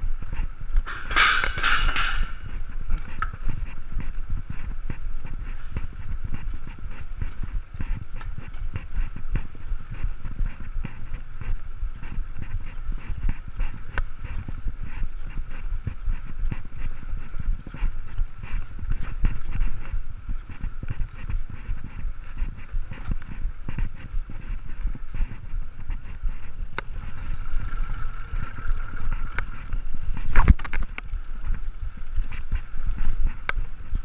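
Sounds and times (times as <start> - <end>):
wind and tyres rumbling: 0.0 - 34.0
bike rattling clicks and knocks: 0.3 - 7.4, 26.8 - 32.4.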